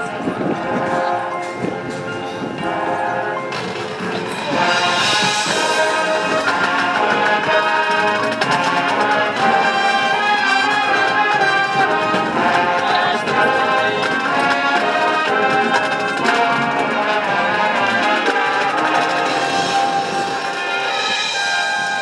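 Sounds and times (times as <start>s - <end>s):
keyboard percussion: 0.0s - 22.0s
brass chords: 0.5s - 22.0s.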